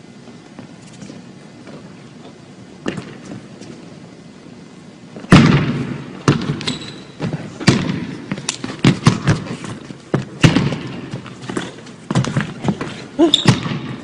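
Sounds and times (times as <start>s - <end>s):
basketball bouncing on wooden floor: 5.3s - 14.0s
sneaker squeak: 6.6s - 7.2s, 13.2s - 13.9s.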